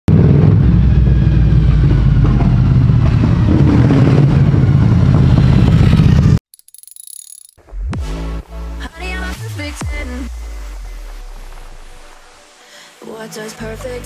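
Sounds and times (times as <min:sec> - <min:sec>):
motorcycle engine running: 0:00.1 - 0:06.4.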